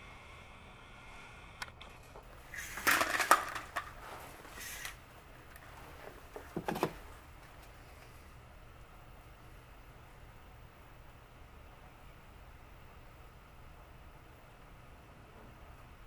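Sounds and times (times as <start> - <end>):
rustles and knocks of handling: 5.5 - 8.1.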